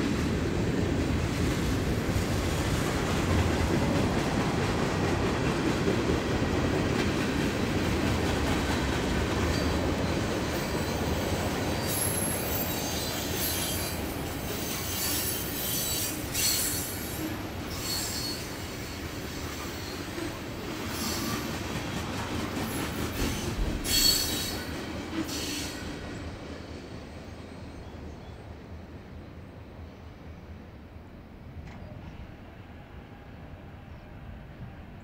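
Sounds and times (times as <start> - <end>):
train cars rumbling: 0.0 - 28.6
wheel squeal: 11.8 - 17.0, 17.7 - 18.7, 23.2 - 24.7.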